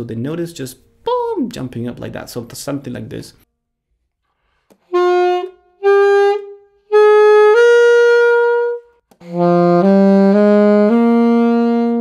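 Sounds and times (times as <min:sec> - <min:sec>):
saxophone notes cracking: 0:04.6 - 0:12.0.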